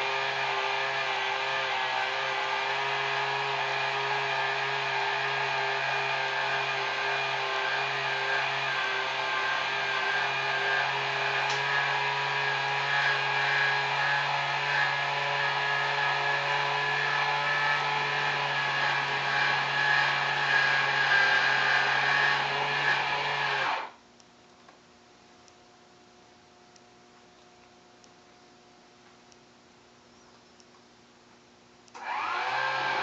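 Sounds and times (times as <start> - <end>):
electric motor whine: 0.0 - 24.0, 32.0 - 33.0.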